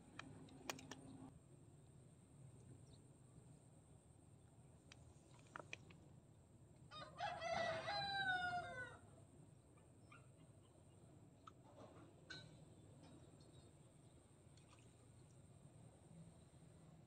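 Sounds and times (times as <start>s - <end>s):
faint clicks: 4.9s - 6.0s
rooster crowing: 6.9s - 9.1s.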